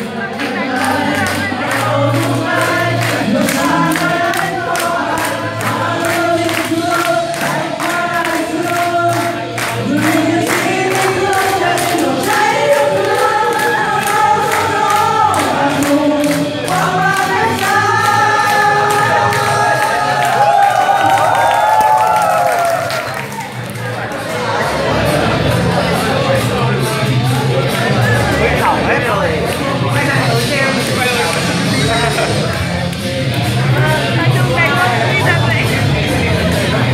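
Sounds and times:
group singing into microphones: 0:00.0 - 0:36.9
hand clapping in time: 0:00.4 - 0:23.8.

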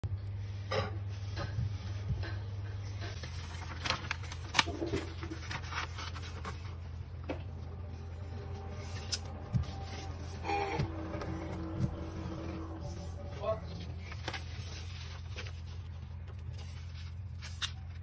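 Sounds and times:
steady low hum: 0:00.0 - 0:18.0
paper rustling and creasing: 0:01.1 - 0:18.0
paper snap: 0:03.2 - 0:05.6, 0:17.4 - 0:18.0.

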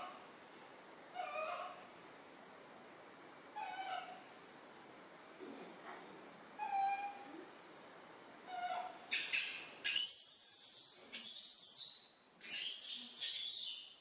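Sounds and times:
monkey coos: 0:01.1 - 0:01.8, 0:03.6 - 0:04.2, 0:06.6 - 0:07.5, 0:08.5 - 0:10.1
high-pitched monkey squeals: 0:01.2 - 0:01.8, 0:03.6 - 0:04.2, 0:06.6 - 0:07.3, 0:08.5 - 0:13.9.

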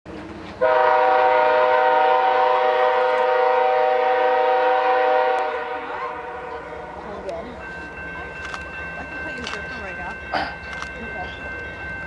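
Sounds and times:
locomotive air horn chord: 0:00.6 - 0:07.0.

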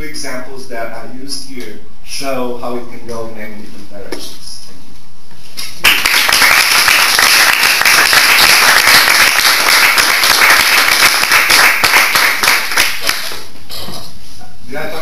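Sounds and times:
audience applauding: 0:05.8 - 0:13.5.

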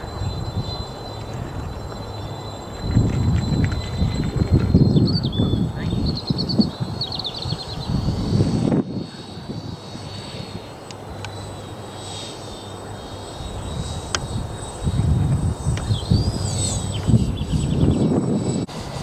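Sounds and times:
wind buffeting microphone: 0:00.0 - 0:11.9, 0:13.4 - 0:19.0
model plane engines droning: 0:00.0 - 0:19.0
small bird trilling: 0:15.6 - 0:18.1.

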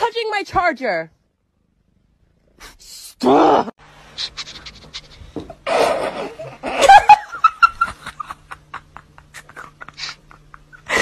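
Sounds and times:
person snickering and laughing: 0:04.2 - 0:11.0.

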